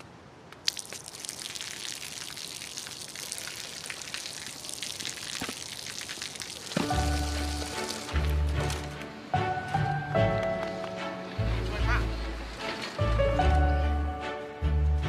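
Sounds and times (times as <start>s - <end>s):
water splashing on wet pavement: 0.5s - 9.0s
background music with deep bass: 6.9s - 15.0s.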